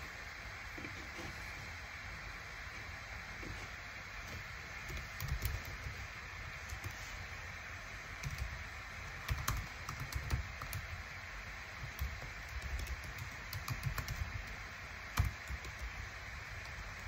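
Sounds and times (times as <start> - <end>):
steady background hiss: 0.0 - 17.0
keyboard typing clicks: 4.9 - 5.9, 9.2 - 10.8, 11.8 - 14.3, 15.1 - 15.9.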